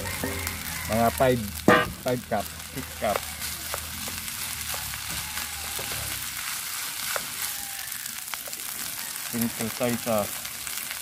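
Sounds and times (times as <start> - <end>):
rice sizzling in oil: 0.0 - 11.0
spatula tapping pan: 7.1 - 7.4.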